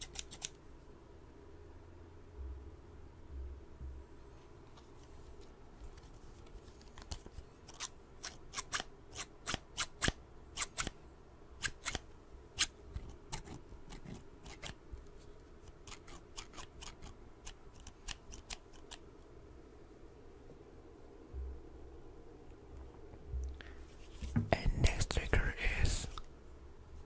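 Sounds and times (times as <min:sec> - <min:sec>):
scissors snipping clicks: 0:00.0 - 0:00.6, 0:15.6 - 0:19.0.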